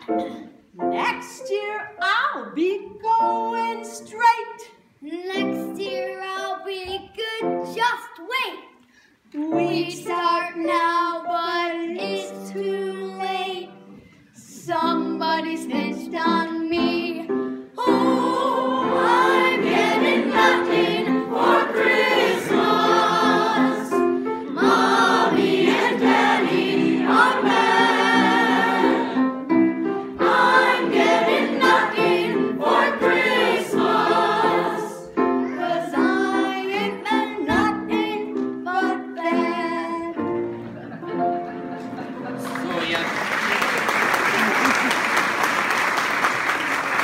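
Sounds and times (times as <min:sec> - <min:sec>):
choir singing: 0:17.8 - 0:37.4.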